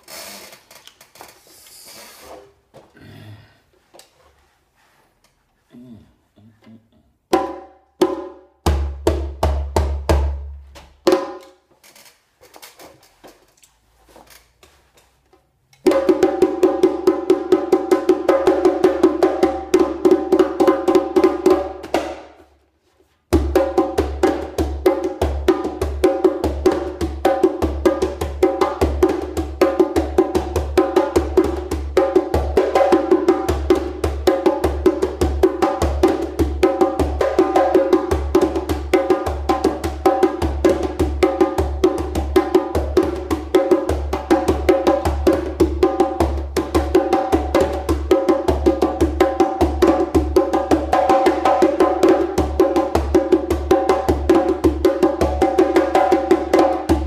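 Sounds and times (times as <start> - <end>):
hand drum played with hands: 7.3 - 11.5, 15.8 - 22.3, 23.3 - 57.0.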